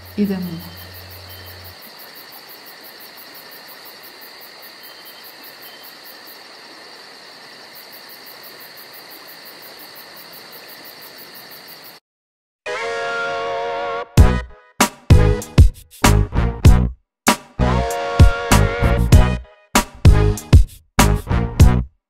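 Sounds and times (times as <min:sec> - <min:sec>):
insects chirping: 0:00.0 - 0:12.0
soft outdoor hiss: 0:00.0 - 0:12.0.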